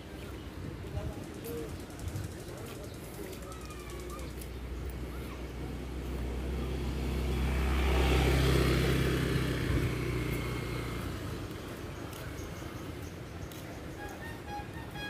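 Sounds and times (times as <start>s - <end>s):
vehicle engine hum passing: 3.4s - 15.0s.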